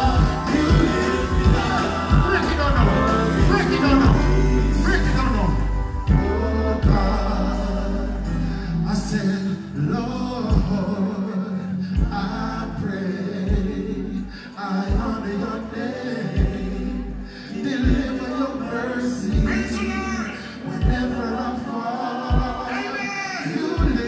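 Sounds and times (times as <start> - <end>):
heavy bass beat: 0.0 - 8.5
man singing: 0.0 - 24.0.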